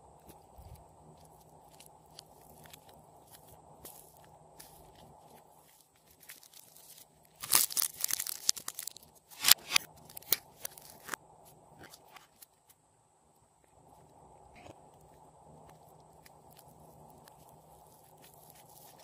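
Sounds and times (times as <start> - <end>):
plastic zip bag crinkling: 5.7 - 11.1.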